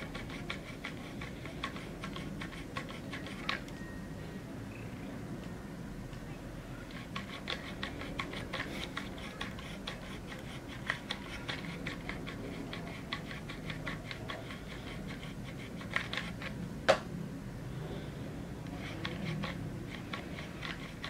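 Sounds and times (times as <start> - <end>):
plastic tool scratching cat fur: 0.0 - 3.7, 6.9 - 16.6, 18.7 - 21.0.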